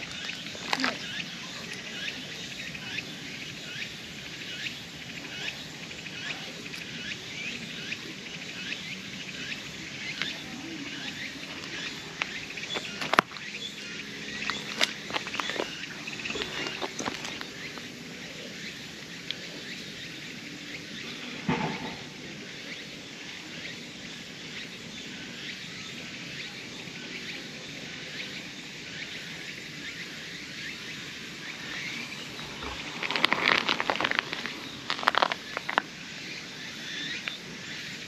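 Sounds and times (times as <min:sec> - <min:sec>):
crackling rustles: 0:00.0 - 0:02.0, 0:10.1 - 0:18.1, 0:31.5 - 0:36.2
steady high hiss: 0:00.0 - 0:38.0.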